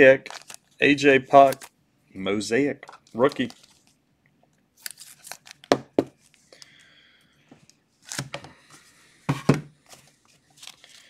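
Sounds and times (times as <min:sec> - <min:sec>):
foil packs rustling: 0:00.0 - 0:00.7, 0:03.1 - 0:03.9
plastic card holders knocking: 0:05.7 - 0:06.1.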